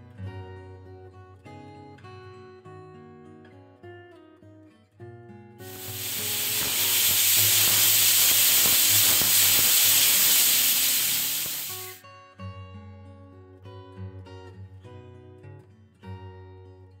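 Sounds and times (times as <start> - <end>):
soft guitar music: 0.0 - 9.1, 11.7 - 17.0
pressure cooker steam hiss: 5.7 - 12.0.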